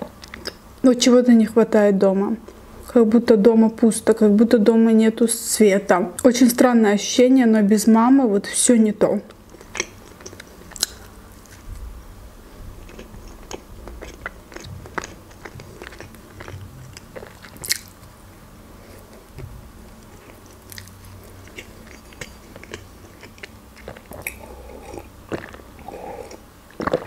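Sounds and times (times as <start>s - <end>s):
chewing with lips closed: 12.8s - 18.1s, 20.0s - 27.0s.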